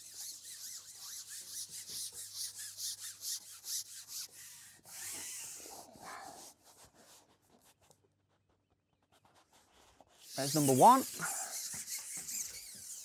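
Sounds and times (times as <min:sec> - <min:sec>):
fishing pole sections rasping: 0:00.0 - 0:06.4, 0:09.9 - 0:13.0.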